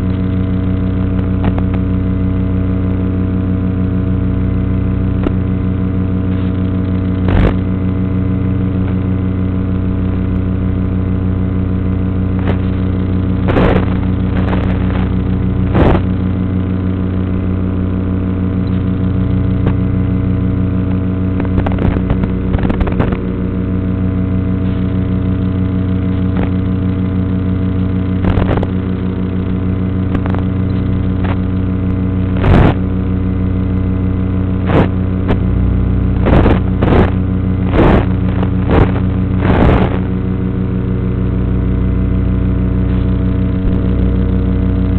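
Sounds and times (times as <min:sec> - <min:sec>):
short crackles: 0:00.0 - 0:02.0, 0:05.1 - 0:08.0, 0:11.8 - 0:17.3, 0:18.5 - 0:33.0, 0:34.4 - 0:35.5, 0:36.1 - 0:40.4, 0:42.8 - 0:44.9
steady buzzing hum: 0:00.0 - 0:44.9.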